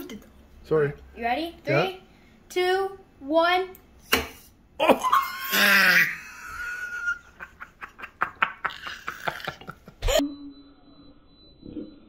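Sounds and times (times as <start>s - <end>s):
child laughing: 4.8s - 10.2s.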